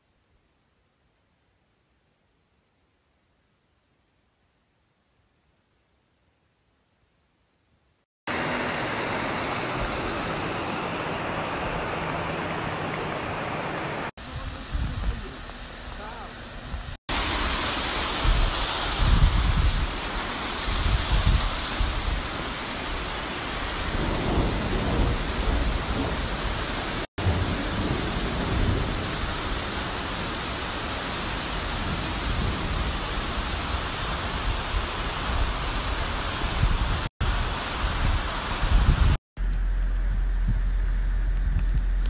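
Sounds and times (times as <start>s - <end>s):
water rushing over rock: 8.3s - 14.1s, 17.1s - 27.1s
low rumbling: 39.0s - 42.0s.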